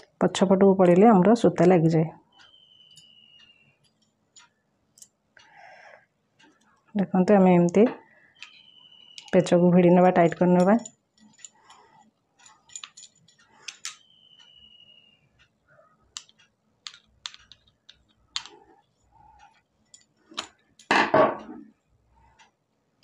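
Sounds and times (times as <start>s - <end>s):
small metal clicks and taps: 8.4s - 9.5s, 10.2s - 14.0s, 16.1s - 21.0s.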